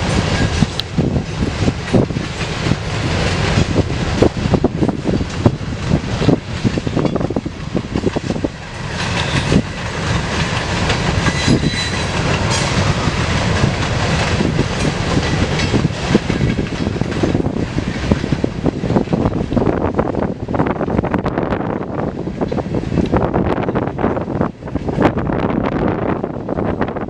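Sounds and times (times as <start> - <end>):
train wheels clicking over rail joints: 0.0 - 21.4
freight train rumble: 0.0 - 27.0.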